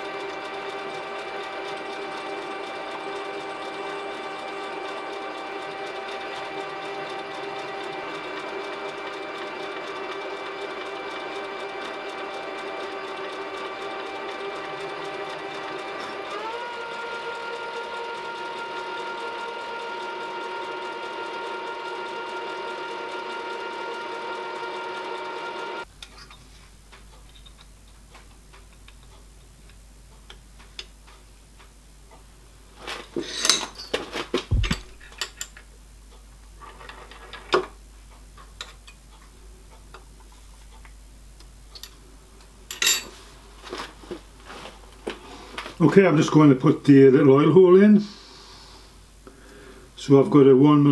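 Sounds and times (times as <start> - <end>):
milling machine spindle whine: 0.0 - 25.9
clicks and knocks of metal parts: 32.9 - 35.7.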